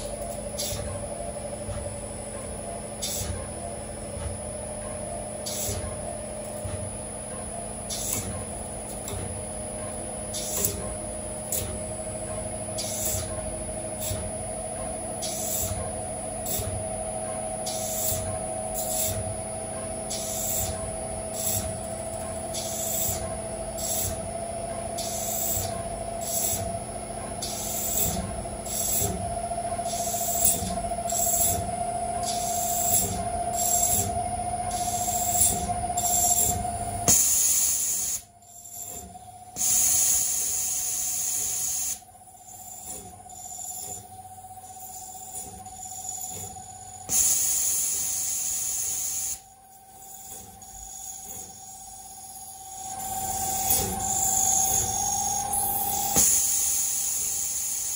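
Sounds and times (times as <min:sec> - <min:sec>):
milling machine spindle whine: 0:00.0 - 0:57.9
cutting tool hiss: 0:25.0 - 0:26.7, 0:29.9 - 0:42.0, 0:47.1 - 0:57.9.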